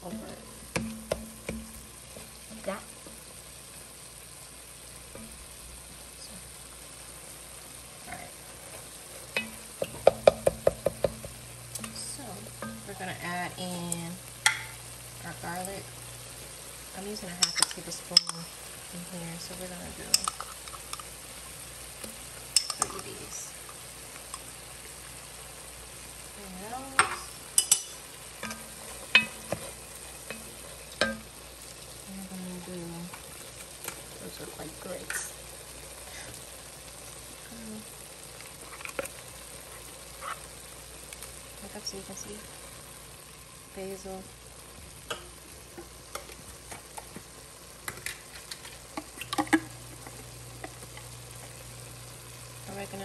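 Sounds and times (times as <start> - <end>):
light sizzle: 0.0 - 53.0
spoon knocking against pot: 0.7 - 1.8, 9.4 - 11.4, 30.3 - 31.3
low steady hum: 7.9 - 21.0
wooden spoon stirring food: 8.5 - 13.0, 26.9 - 31.5, 38.4 - 40.7, 45.1 - 51.6.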